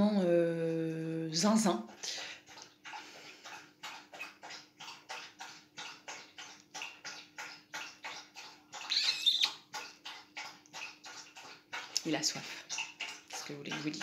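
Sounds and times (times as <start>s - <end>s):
dog lapping water: 0.9s - 14.0s.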